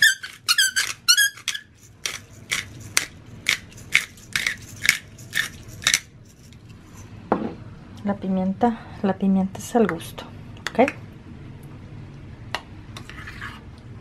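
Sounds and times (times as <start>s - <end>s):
squeaky chirps: 0.0s - 1.7s
pepper mill grinding: 0.0s - 6.6s.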